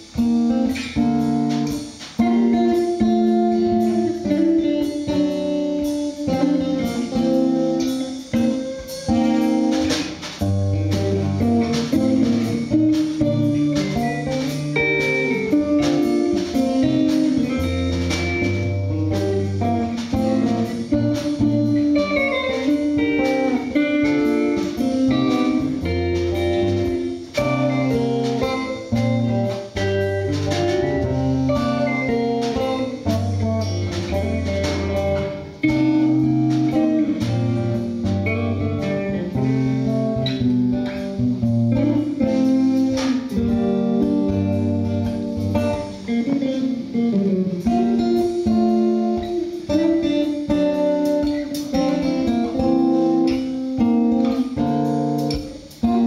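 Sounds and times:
congas: 0.0 - 56.0
electric guitar: 0.0 - 56.0
hand percussion hits: 5.9 - 46.9
low bass notes: 9.1 - 56.0.

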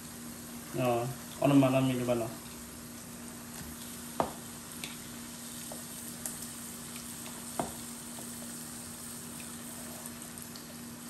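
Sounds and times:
meat sizzling in hot oil: 0.0 - 11.0.

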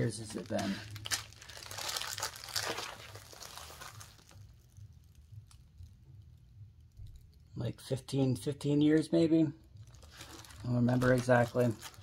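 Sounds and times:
packaging crinkling: 0.0 - 6.0, 9.7 - 12.0.

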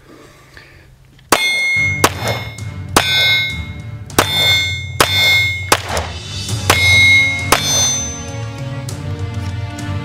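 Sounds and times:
pistol shots: 1.3 - 8.1
steel target ringing: 1.3 - 8.4.

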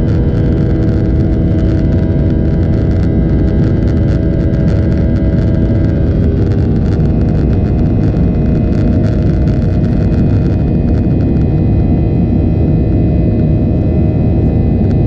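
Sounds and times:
jet engines cabin hum: 0.0 - 15.0.

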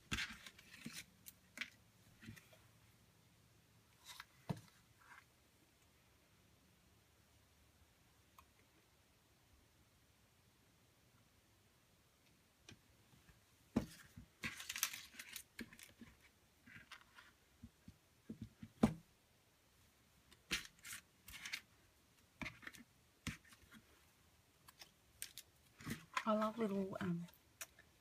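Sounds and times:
paper rustling: 13.9 - 17.4.

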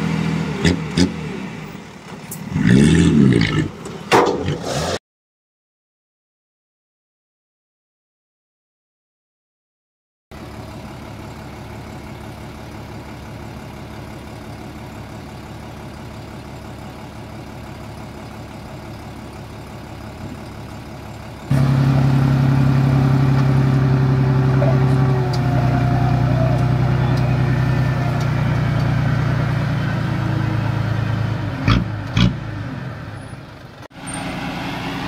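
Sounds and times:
heavy machinery diesel engine: 0.0 - 4.6, 10.3 - 35.0.

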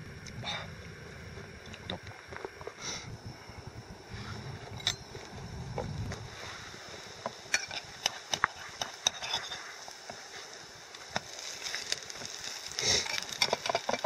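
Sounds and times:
faint sizzle: 0.0 - 14.0
fork scraping frying pan: 7.6 - 9.7.

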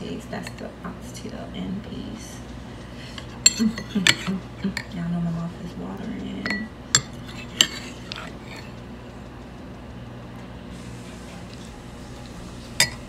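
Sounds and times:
steady low hum: 0.0 - 13.0
metal spoon clinking on bowl: 6.4 - 8.3.

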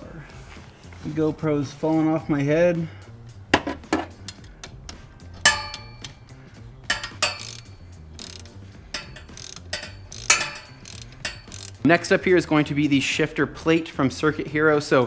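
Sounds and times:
metal clinks of bolts and tool: 4.0 - 11.8
ratchet wrench clicking: 4.2 - 6.3, 6.9 - 11.9.

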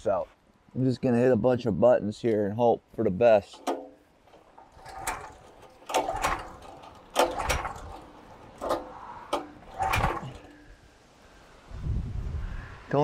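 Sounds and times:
switches clicking and clunking: 3.4 - 10.8.

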